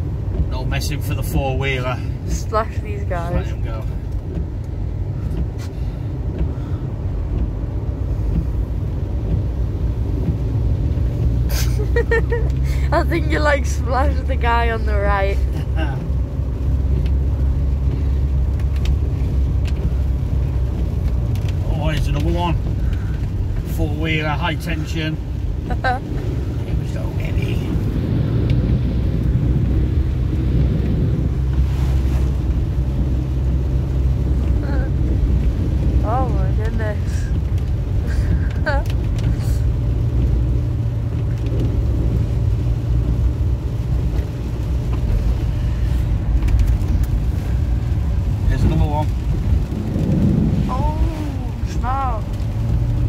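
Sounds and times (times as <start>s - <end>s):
engine and tyres rumble in car cabin: 0.0s - 53.0s.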